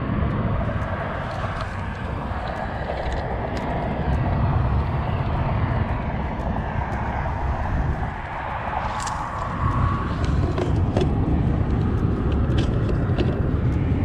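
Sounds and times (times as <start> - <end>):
wind buffeting microphone: 0.0 - 14.0
faint ticks: 0.2 - 14.0.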